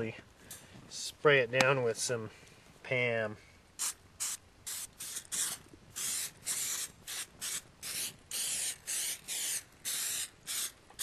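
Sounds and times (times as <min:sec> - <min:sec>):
aerosol spray hissing spurts: 0:03.8 - 0:11.0.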